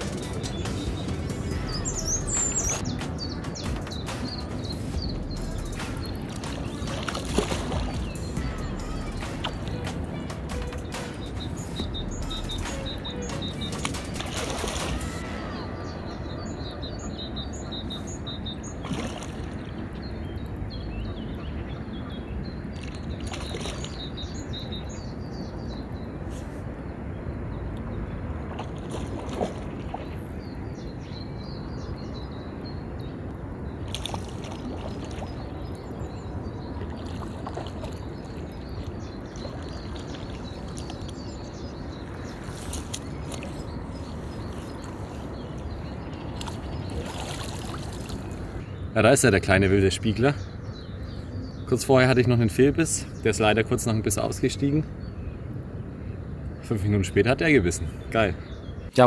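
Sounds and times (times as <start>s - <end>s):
river water sloshing and splashing: 0.0s - 48.7s
small birds twittering: 0.0s - 59.0s
fish thrashing in water: 5.4s - 8.6s, 13.7s - 15.5s, 18.8s - 19.8s, 22.8s - 24.2s, 28.4s - 30.2s, 33.8s - 35.7s, 36.8s - 41.3s, 42.0s - 45.3s, 46.2s - 48.6s.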